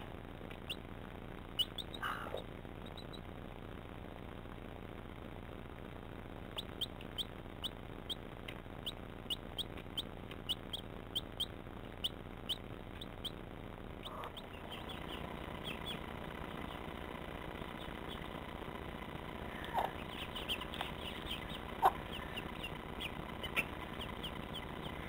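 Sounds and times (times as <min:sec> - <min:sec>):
chick peeping: 0:01.5 - 0:03.3, 0:06.5 - 0:13.4, 0:14.0 - 0:25.0.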